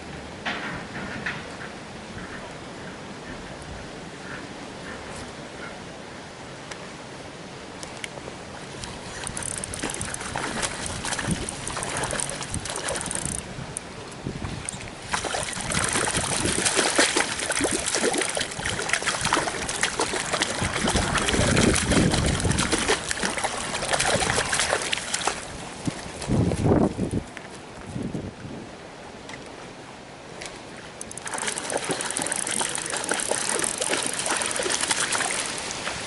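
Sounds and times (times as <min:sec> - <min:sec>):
fish splashing in water: 0:09.2 - 0:13.4, 0:15.0 - 0:25.6, 0:31.0 - 0:36.0.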